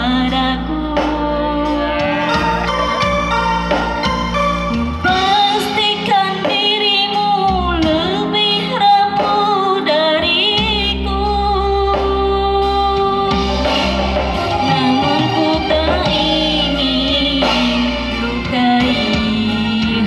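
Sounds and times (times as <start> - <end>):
woman singing with vibrato: 0.0 - 3.0, 5.0 - 13.6, 14.4 - 20.0
electronic keyboard accompaniment: 0.0 - 20.0.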